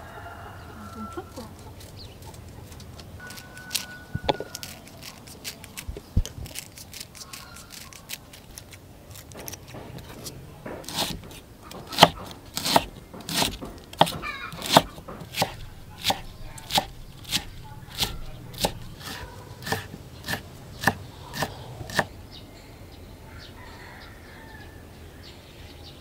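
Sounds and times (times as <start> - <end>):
knife chopping on cutting board: 9.3 - 22.1.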